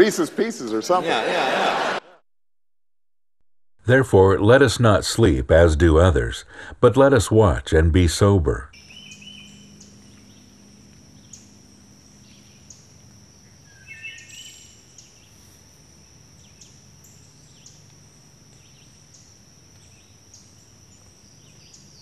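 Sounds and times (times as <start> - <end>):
high-pitched insect drone: 8.8 - 22.0
short insect chirp: 8.8 - 22.0.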